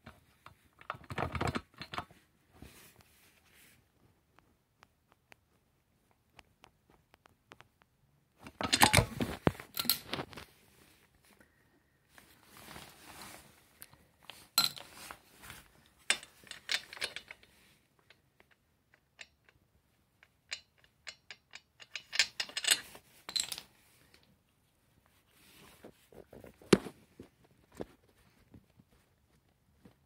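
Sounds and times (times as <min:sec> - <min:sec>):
handling knocks and rustles: 0:08.4 - 0:11.4, 0:12.1 - 0:17.8.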